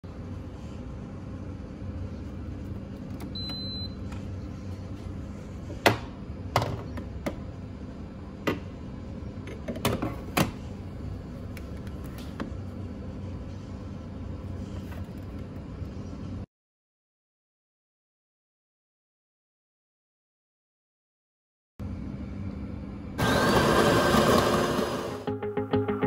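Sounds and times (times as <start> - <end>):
steady low hum: 0.0 - 16.5.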